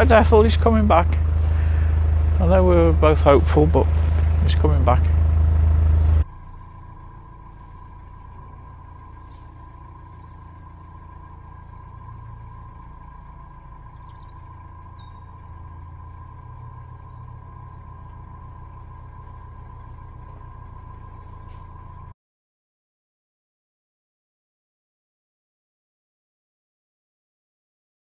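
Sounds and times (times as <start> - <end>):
boat diesel engine rumble: 0.0 - 22.2
steady high tone: 6.2 - 22.1.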